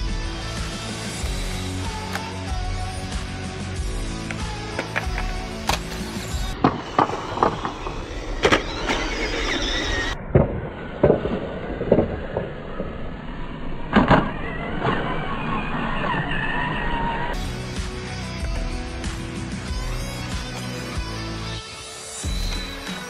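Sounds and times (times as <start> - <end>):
electric motor whining: 0.0 - 10.2
tyre noise on concrete: 4.3 - 9.4.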